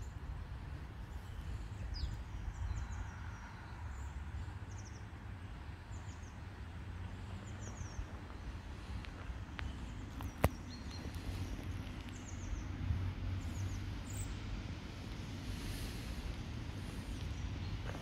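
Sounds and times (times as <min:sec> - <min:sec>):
small birds chirping: 0:01.0 - 0:05.2, 0:05.8 - 0:18.0
steady low rumble: 0:05.6 - 0:18.0.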